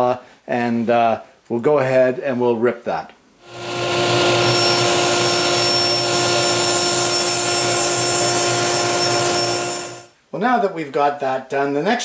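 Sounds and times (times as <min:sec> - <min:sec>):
table saw ripping a board: 0:03.4 - 0:10.1.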